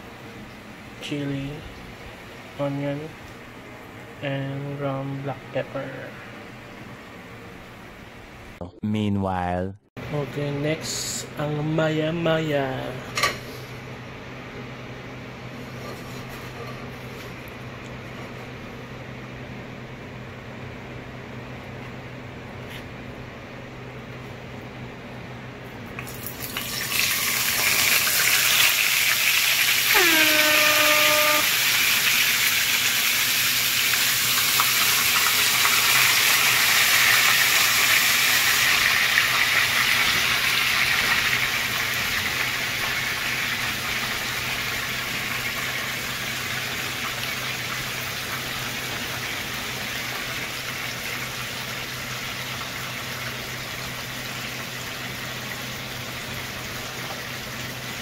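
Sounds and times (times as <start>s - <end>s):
fish sizzling in hot oil: 26.0s - 57.4s.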